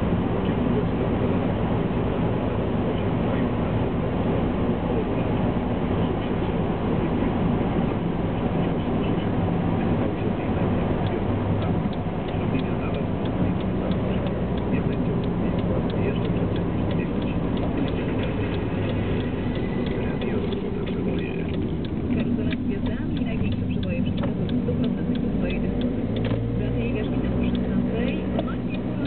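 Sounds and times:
car road and engine noise: 0.0 - 29.0
regular ticking: 9.2 - 29.0.

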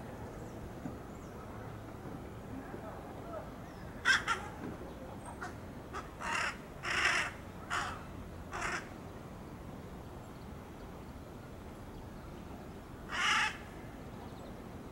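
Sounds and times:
crow harsh calls: 4.0 - 4.6, 5.3 - 8.9, 13.1 - 13.8.

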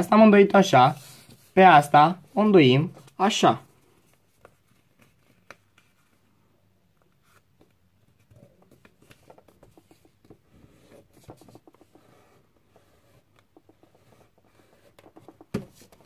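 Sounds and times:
paper rustling and crinkling: 3.8 - 6.4.

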